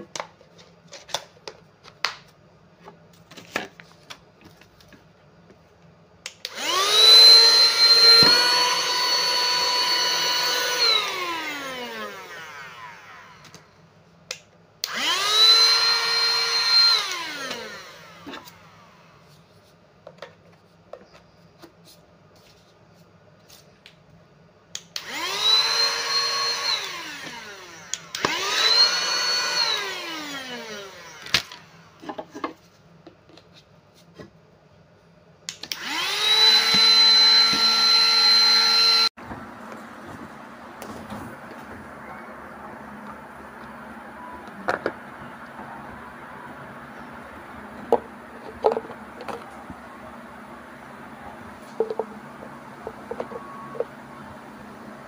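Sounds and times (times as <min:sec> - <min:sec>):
vacuum cleaner motor whining: 0:06.4 - 0:13.7, 0:14.8 - 0:19.1, 0:25.0 - 0:32.2, 0:35.7 - 0:55.0.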